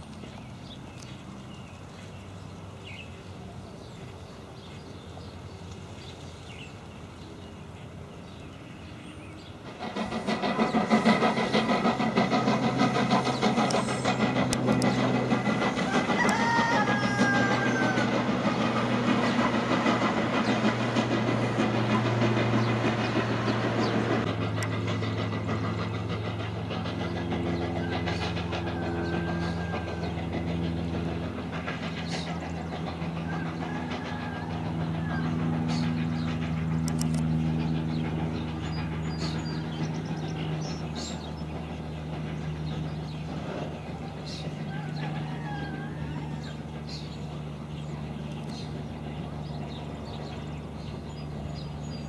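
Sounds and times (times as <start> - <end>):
steam locomotive running low hum: 0.0 - 52.0
steam hissing from cylinder cocks: 9.5 - 27.0
train wheel clicks: 9.6 - 44.0.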